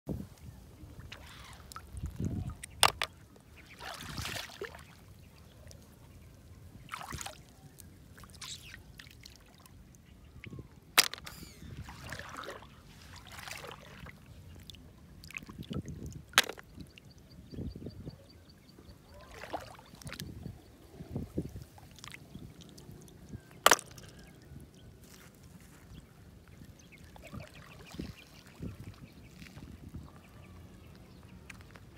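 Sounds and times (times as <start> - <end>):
hand splashing in shallow water: 1.0 - 5.0, 11.0 - 14.3.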